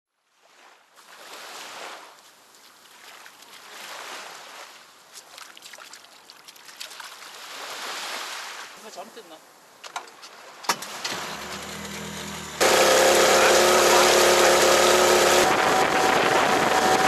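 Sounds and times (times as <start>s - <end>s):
water washing against rubber boat: 1.0s - 8.8s, 10.2s - 17.0s
small splashes and ticks: 2.0s - 7.6s.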